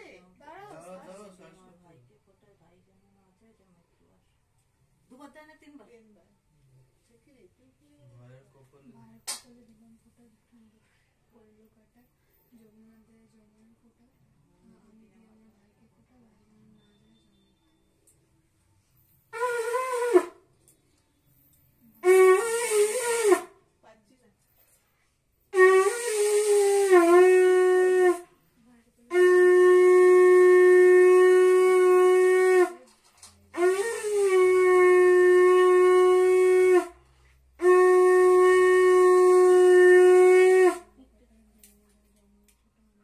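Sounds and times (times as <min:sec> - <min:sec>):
conch shell blasts: 0:19.3 - 0:20.5, 0:22.0 - 0:23.6, 0:25.5 - 0:28.4, 0:29.1 - 0:32.9, 0:33.5 - 0:41.0.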